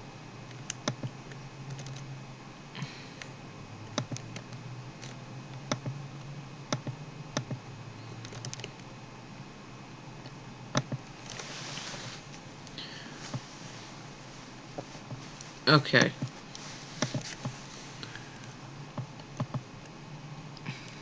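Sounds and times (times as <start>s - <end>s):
low steady background hum: 0.0s - 21.0s
computer keyboard and mouse clicks: 0.5s - 2.0s, 3.9s - 7.6s, 8.2s - 8.9s, 10.7s - 11.4s, 17.0s - 17.5s, 19.0s - 20.0s.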